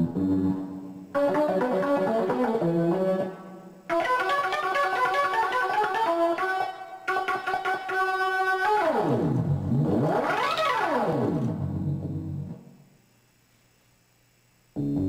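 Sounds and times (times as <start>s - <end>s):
synthesizer repeated notes: 0.0s - 12.6s
synthesizer tone sweeping in pitch: 3.9s - 12.5s.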